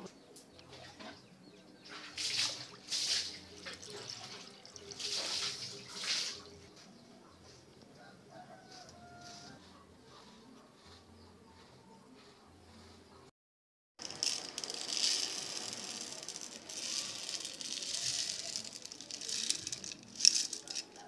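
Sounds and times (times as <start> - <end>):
water splashing into metal pot: 2.0 - 6.5.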